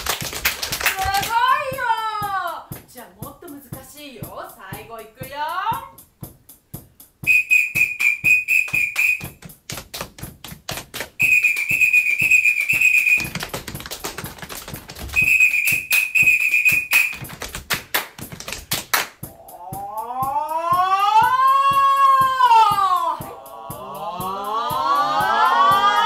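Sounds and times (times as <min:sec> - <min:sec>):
hand claps and body slaps: 0:00.0 - 0:01.9, 0:07.5 - 0:19.3
trilling whistle blasts: 0:07.2 - 0:09.4, 0:11.2 - 0:13.3, 0:15.2 - 0:17.3.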